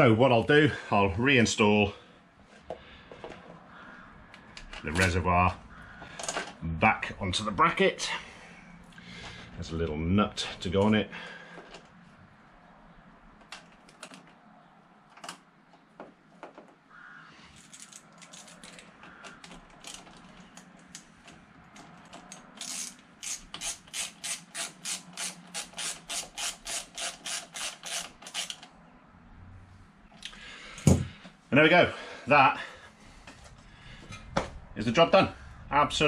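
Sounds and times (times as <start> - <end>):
ratchet wrench clicking: 22.1 - 28.7.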